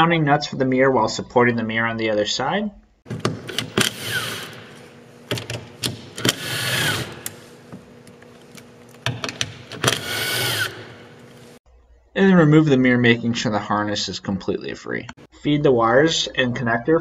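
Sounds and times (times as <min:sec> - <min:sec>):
cordless driver whining: 0:03.2 - 0:11.6.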